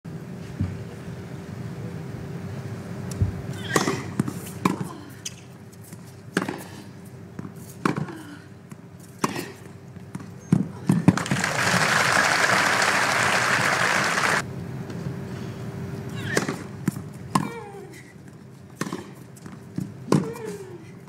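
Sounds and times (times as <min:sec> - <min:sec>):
crowd applauding: 0:11.1 - 0:14.4.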